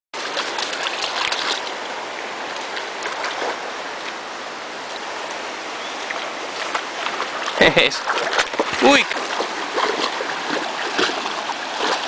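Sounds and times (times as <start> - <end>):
puppy paws splashing: 0.2 - 1.8, 6.1 - 12.0
stream water running: 0.2 - 12.0.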